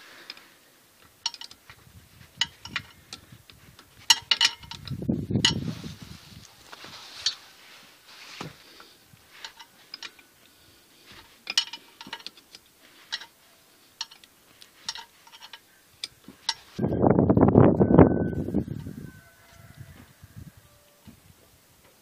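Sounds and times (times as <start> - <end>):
metal spanner clicking and scraping: 1.2 - 1.6, 2.3 - 5.7, 9.3 - 10.3, 11.1 - 16.8.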